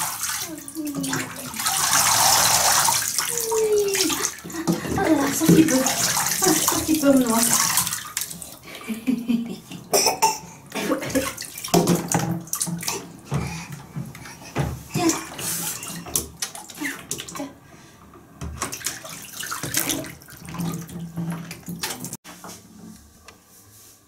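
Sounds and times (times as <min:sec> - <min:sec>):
bathwater splashing: 0:00.0 - 0:22.2
plastic bath toys knocking: 0:00.8 - 0:08.4, 0:10.8 - 0:17.3, 0:18.4 - 0:22.2.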